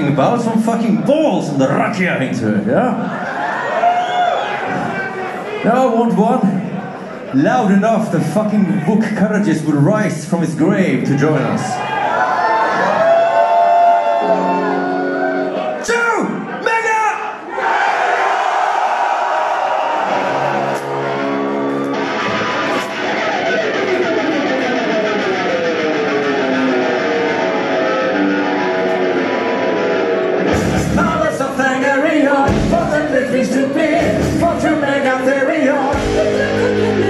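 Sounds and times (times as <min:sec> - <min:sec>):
metal band playing: 0:20.1 - 0:37.0
drums and bass: 0:30.5 - 0:31.4, 0:32.4 - 0:33.3, 0:33.9 - 0:34.8, 0:35.9 - 0:37.0
person singing: 0:30.6 - 0:37.0.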